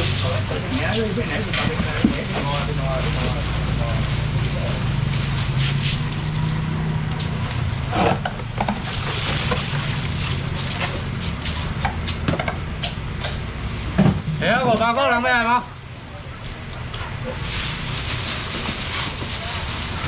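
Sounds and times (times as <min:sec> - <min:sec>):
plastic bags rustling: 0:16.5 - 0:20.0.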